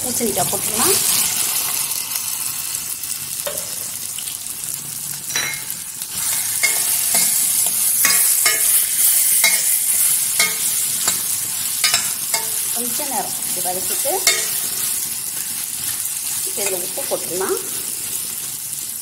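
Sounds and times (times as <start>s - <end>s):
food sizzling in oil: 0.0s - 19.0s
metal spoon scraping pan: 5.3s - 13.2s, 13.8s - 15.1s.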